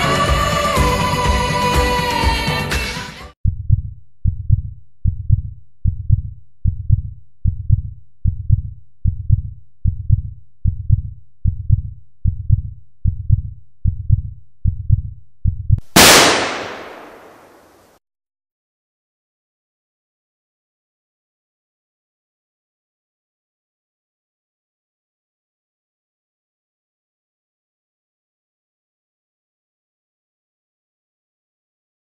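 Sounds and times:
heartbeat double thuds: 0:03.5 - 0:15.8
loud blast: 0:16.0 - 0:17.8.

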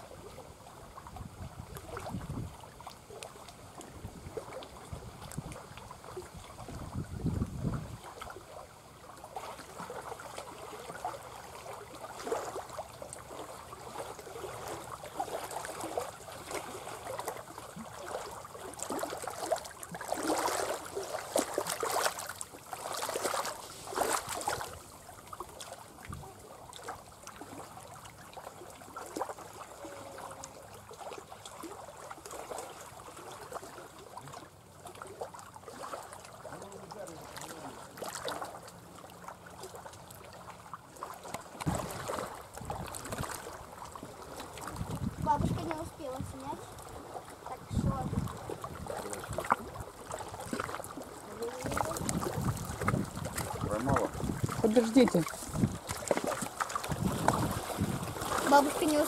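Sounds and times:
water trickling and splashing: 0:00.0 - 0:59.0.

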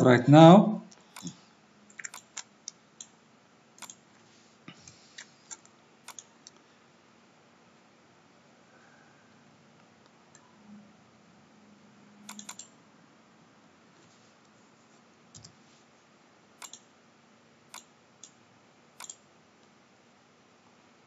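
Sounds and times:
faint room hiss: 0:00.0 - 0:21.0
computer mouse clicking: 0:00.9 - 0:03.2, 0:03.8 - 0:04.0, 0:04.9 - 0:06.6, 0:12.3 - 0:12.8, 0:15.3 - 0:15.6, 0:16.6 - 0:16.9, 0:17.7 - 0:18.4, 0:19.0 - 0:19.2.

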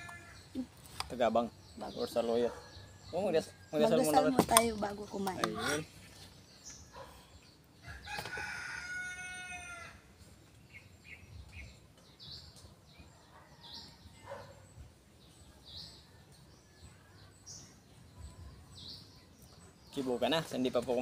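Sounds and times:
small birds chirping: 0:00.0 - 0:21.0
rooster crowing: 0:07.8 - 0:10.0.

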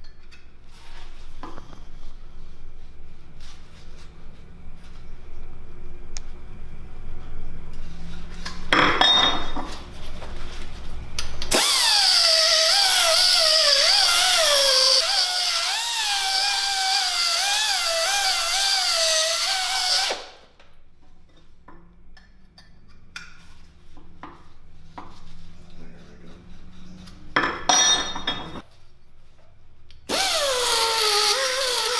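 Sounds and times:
air die grinder whining: 0:11.5 - 0:20.4, 0:30.1 - 0:31.9.

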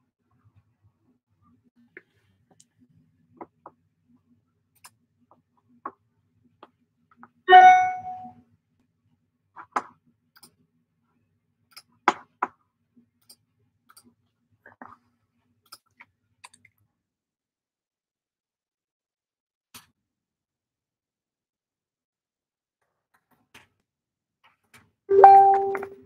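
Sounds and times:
short ringing chime: 0:07.5 - 0:08.3, 0:25.1 - 0:26.0.

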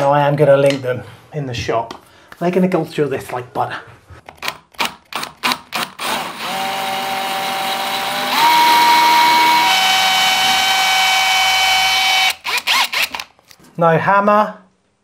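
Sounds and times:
drill clicks: 0:04.3 - 0:13.6
power drill whining into tile: 0:05.4 - 0:13.3.

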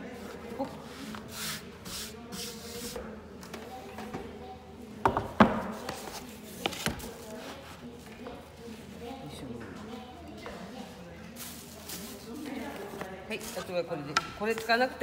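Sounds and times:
rubbing swishes on wooden table: 0:00.7 - 0:03.2.

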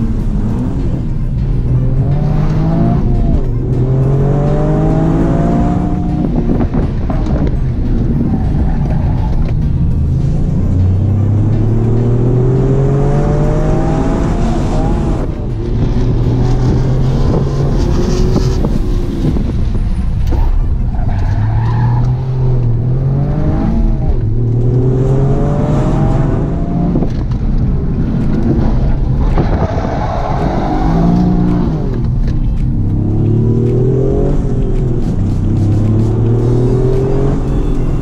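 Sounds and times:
car engine revving in cabin: 0:30.5 - 0:38.0.

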